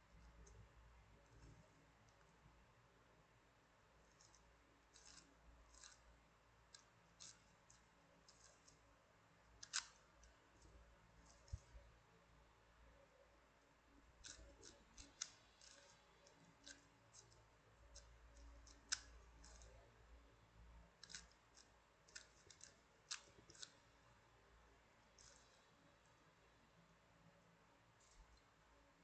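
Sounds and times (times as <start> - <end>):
puzzle cube plastic clicks: 9.6 - 10.0, 21.0 - 23.8.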